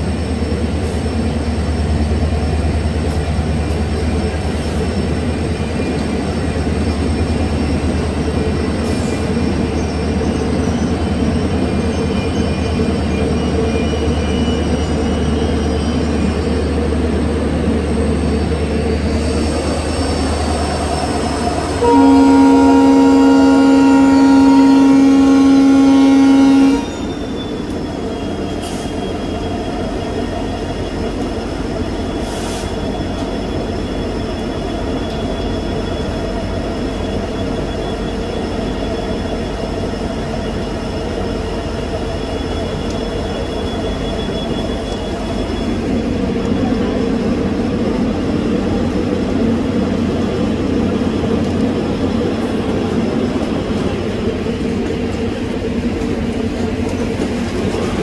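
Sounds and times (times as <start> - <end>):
passenger train rumbling: 0.0 - 58.0
locomotive horn: 20.8 - 27.2.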